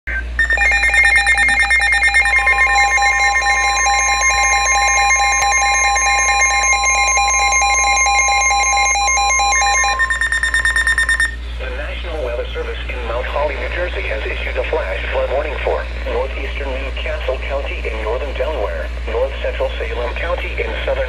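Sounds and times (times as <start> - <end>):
steady warning tone: 0.2 - 12.3
warbling electronic alert beep: 0.4 - 11.4.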